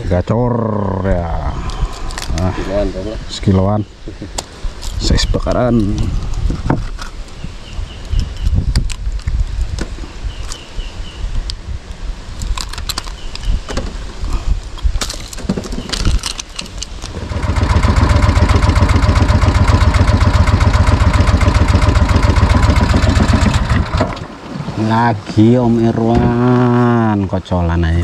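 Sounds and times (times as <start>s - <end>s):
boat engine running: 17.1s - 24.8s
knocks and clicks on boat: 21.1s - 25.4s.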